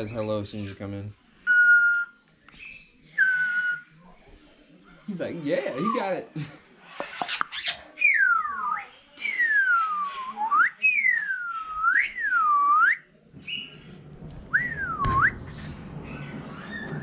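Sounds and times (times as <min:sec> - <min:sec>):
parrot whistling: 0:01.4 - 0:03.8.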